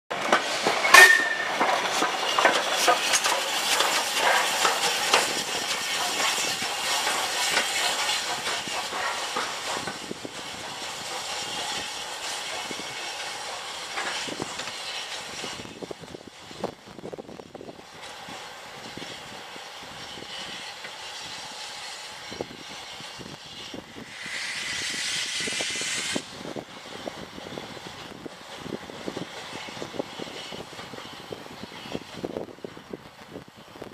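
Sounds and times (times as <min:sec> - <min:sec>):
train wheels clanking over rail joints: 0:00.1 - 0:33.5
steam hiss: 0:00.2 - 0:33.8.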